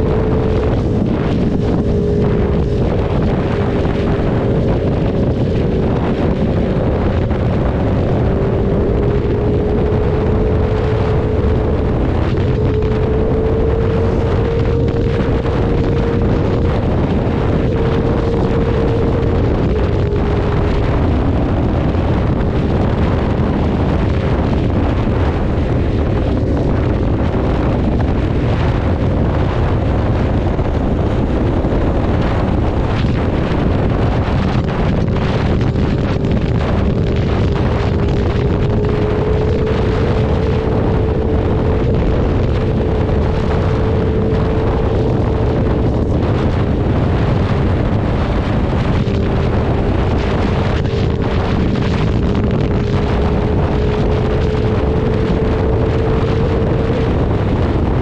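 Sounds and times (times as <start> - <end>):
motorcycle engine cruising: 0.0 - 58.0
wind noise on microphone: 0.0 - 58.0.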